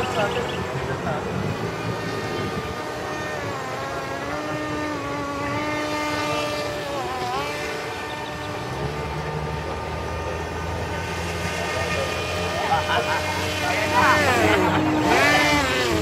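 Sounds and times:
drone propellers buzzing: 0.0 - 16.0.

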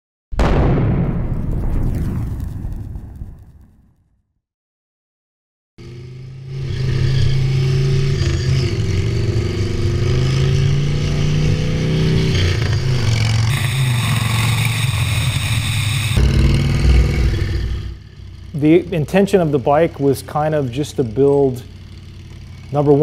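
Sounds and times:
motorcycle engine revving: 5.8 - 23.0.

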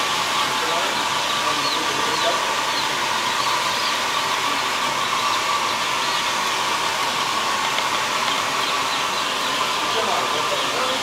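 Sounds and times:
chicks peeping: 0.0 - 11.0
heater blower rushing air: 0.0 - 11.0.

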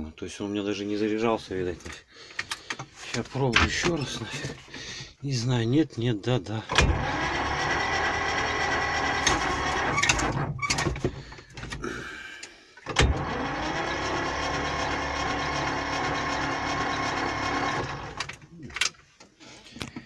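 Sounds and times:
starter cranking diesel engine: 6.7 - 10.5, 12.9 - 18.5.

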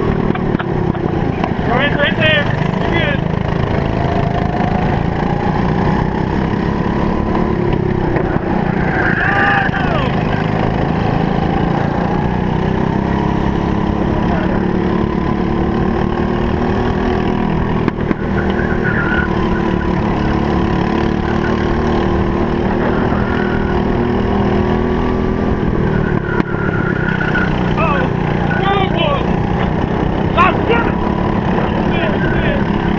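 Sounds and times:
kart engine at racing speed: 0.0 - 32.9.

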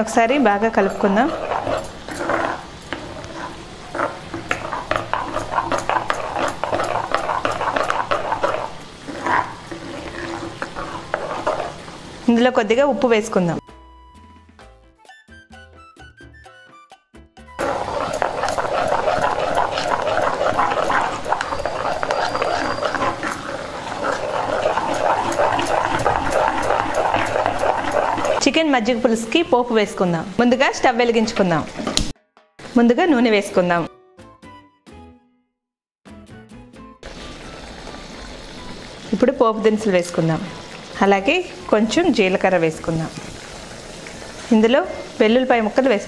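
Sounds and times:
spoon scraping clay pot: 0.0 - 12.3, 17.6 - 28.6
wet stirring of curd: 0.2 - 12.4, 17.6 - 28.6
liquid sloshing: 0.4 - 12.3, 17.6 - 28.6.

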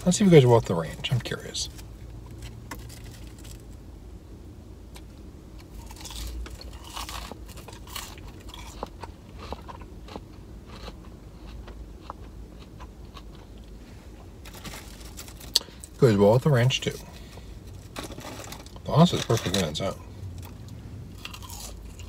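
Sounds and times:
person chewing crunchy food: 5.6 - 16.0, 16.9 - 22.0.

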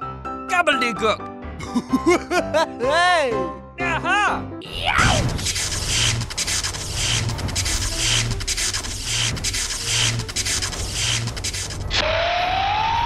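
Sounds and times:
rhythmic scraping rasping: 5.2 - 12.0.

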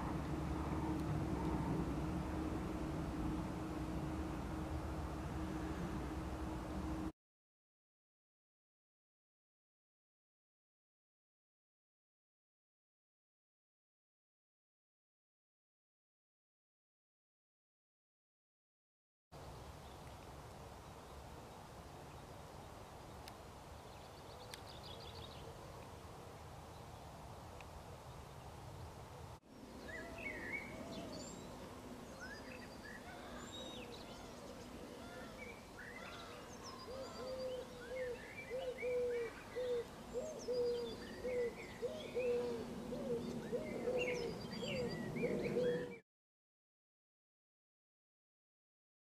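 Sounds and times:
low background noise: 0.0 - 7.1, 19.4 - 46.0
small birds chirping: 21.0 - 25.9, 29.5 - 46.0
low cooing: 36.2 - 46.0.

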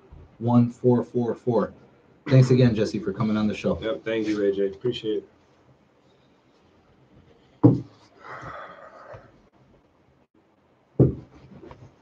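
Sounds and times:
sharp thumps: 7.6 - 8.0, 11.0 - 11.9.

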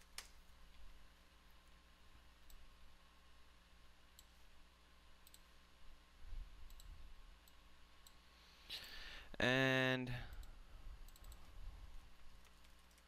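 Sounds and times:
room hum: 0.0 - 13.0
computer mouse clicks: 5.2 - 5.5, 6.6 - 8.2, 10.3 - 11.5.

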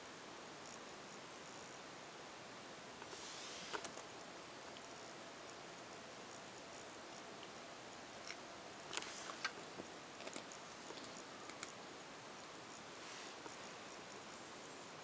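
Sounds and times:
faint steady hiss: 0.0 - 15.0
light clicks and ticks: 8.2 - 11.8.

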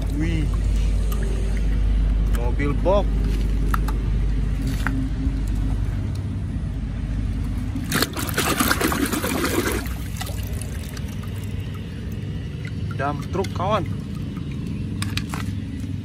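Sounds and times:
steady low hum: 0.0 - 16.0
hand splashing in water: 7.8 - 11.5.

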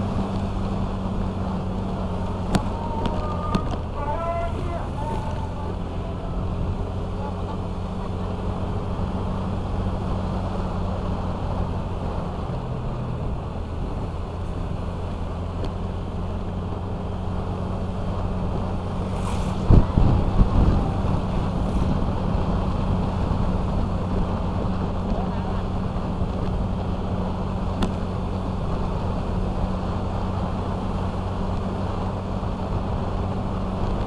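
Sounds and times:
wind on microphone: 18.2 - 34.0.

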